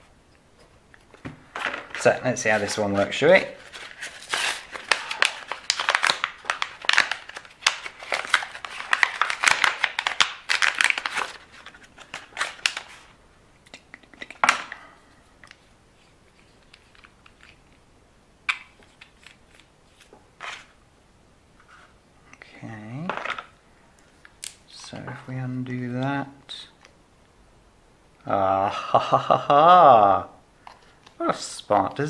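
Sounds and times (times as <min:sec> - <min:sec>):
crinkling and tearing material: 0:03.5 - 0:13.1.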